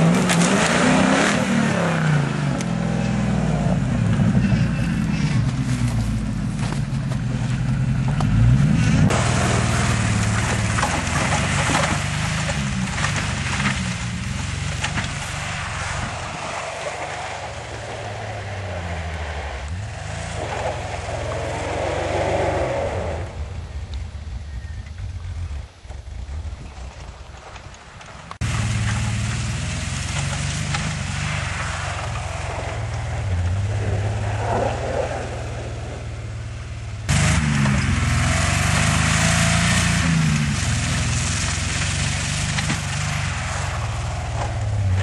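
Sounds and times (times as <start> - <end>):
engine revving hard: 0.0 - 3.0, 8.4 - 13.8, 16.0 - 23.4, 37.1 - 45.0
tyres churning through snow: 0.0 - 45.0.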